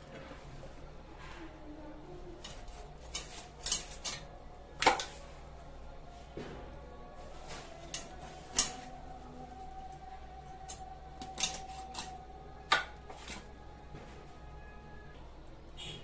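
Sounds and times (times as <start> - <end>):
blade clicking on bone and bowl: 2.4 - 4.3, 10.6 - 12.8.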